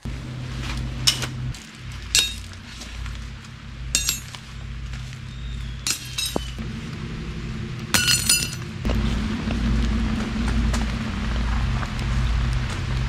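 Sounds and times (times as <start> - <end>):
metal gear clinking: 1.9 - 2.6, 3.9 - 4.5, 5.8 - 6.6, 8.0 - 8.7.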